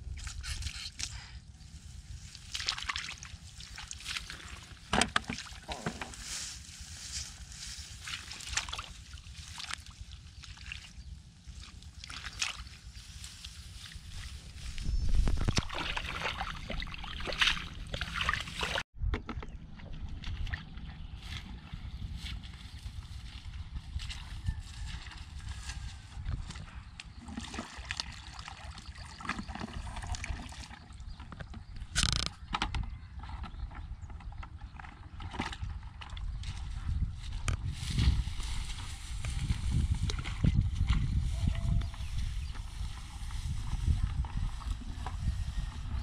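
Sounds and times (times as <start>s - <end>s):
hands sloshing in muddy water: 2.1s - 6.0s, 7.9s - 18.8s, 27.1s - 31.0s
wind rumble on microphone: 5.6s - 46.0s
rustling in grass: 5.9s - 9.6s, 12.4s - 15.5s, 21.2s - 26.3s, 36.7s - 46.0s.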